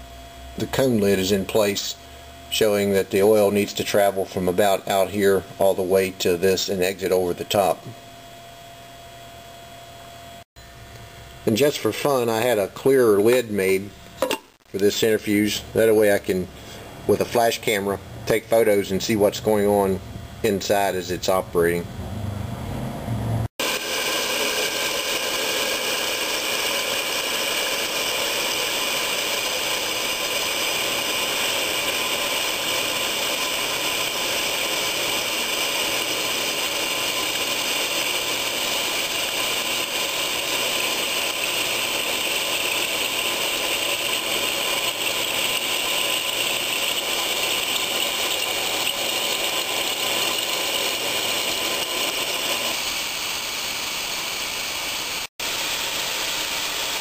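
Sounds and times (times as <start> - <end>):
centrifuge running: 23.6 - 57.0.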